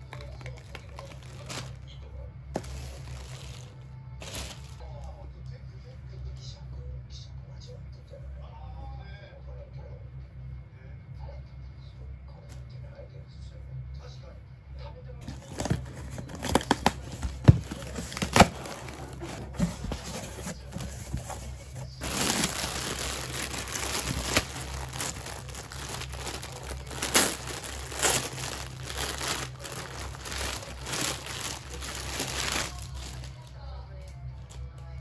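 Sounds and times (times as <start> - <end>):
plastic bags crinkling: 0.0 - 1.9, 2.6 - 4.8, 15.2 - 33.5.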